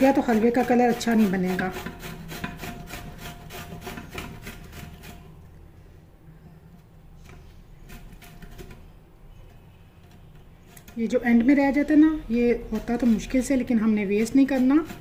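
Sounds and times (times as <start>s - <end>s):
gourd grated on metal grater: 0.0s - 5.4s, 7.2s - 15.0s.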